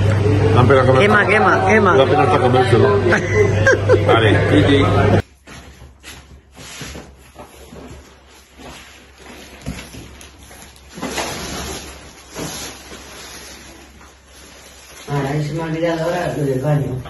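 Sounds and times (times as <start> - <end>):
plastic packaging crinkling: 7.3 - 16.6.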